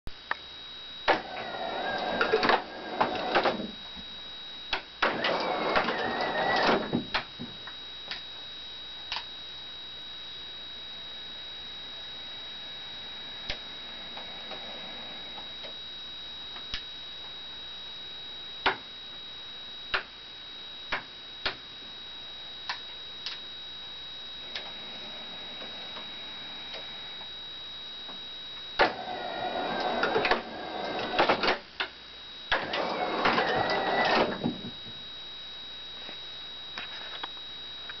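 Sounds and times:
high-pitched whine: 0.1 - 38.0
model train motors whirring: 5.1 - 6.8, 28.8 - 31.6, 32.5 - 34.5.

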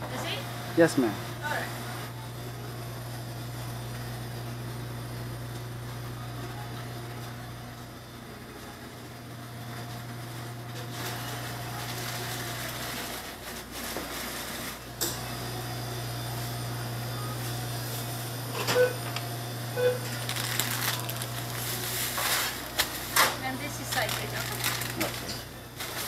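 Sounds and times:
low hum of equipment: 0.0 - 26.0.

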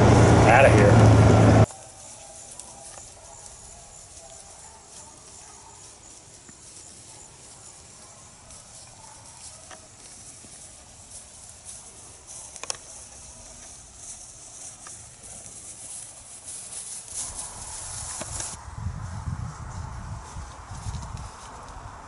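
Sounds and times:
low rumble: 0.0 - 1.7.

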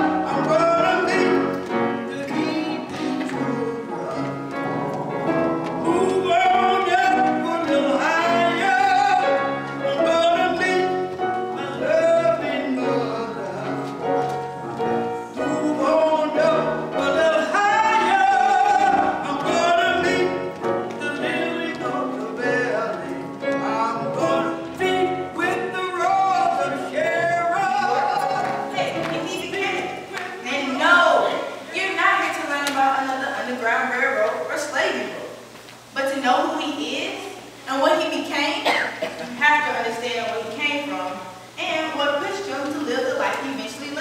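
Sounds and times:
instrumental accompaniment: 0.0 - 31.7.

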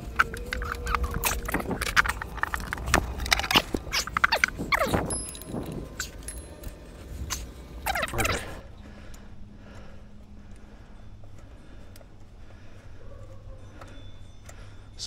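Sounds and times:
metal hand tools clinking on engine: 0.0 - 8.5.

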